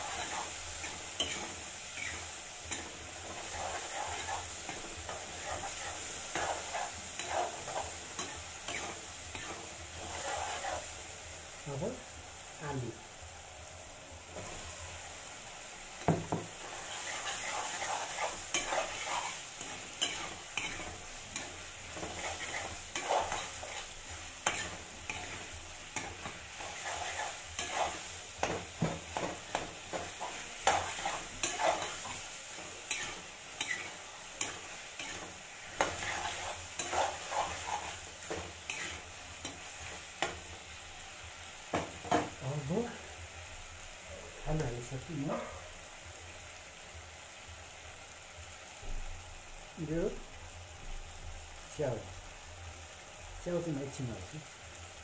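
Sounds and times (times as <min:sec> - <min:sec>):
spatula scraping metal wok: 0:00.0 - 0:10.9, 0:16.6 - 0:40.0
food sizzling in wok: 0:00.0 - 0:55.0.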